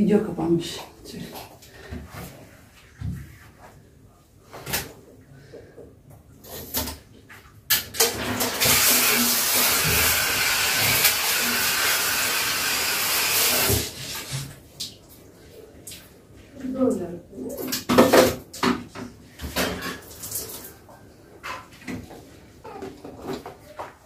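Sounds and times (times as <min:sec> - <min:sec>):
knocks and clatters in bathtub: 0:04.5 - 0:08.9, 0:17.5 - 0:24.0
shower head spraying water: 0:08.4 - 0:14.5.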